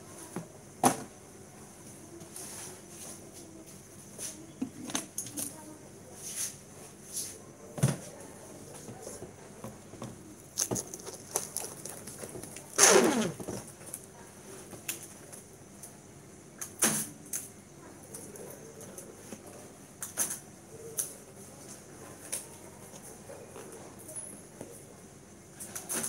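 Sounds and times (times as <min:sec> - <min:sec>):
plastic rustling: 0:10.4 - 0:14.1
packaging crinkling: 0:10.5 - 0:14.1.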